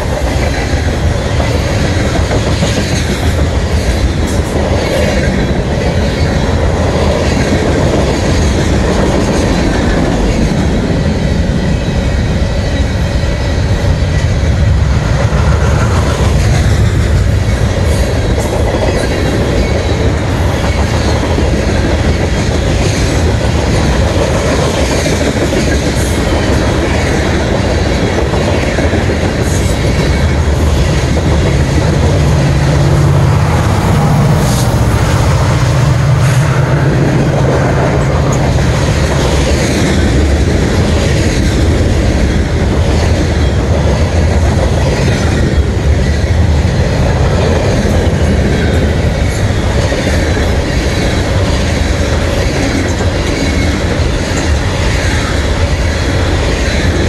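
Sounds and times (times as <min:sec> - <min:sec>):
train wheels rumbling on rails: 0:00.0 - 0:57.0
low drone: 0:29.0 - 0:42.6.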